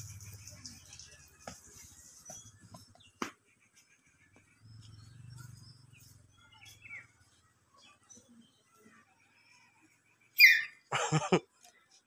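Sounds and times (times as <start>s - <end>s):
small birds chirping: 0.0s - 12.0s.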